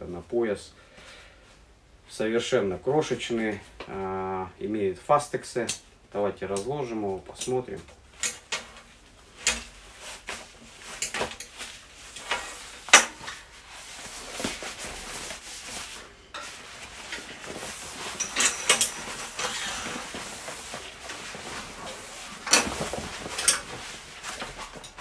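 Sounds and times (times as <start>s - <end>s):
fabric rustling and flapping: 7.7s - 25.0s
buckles and straps clicking: 16.4s - 25.0s.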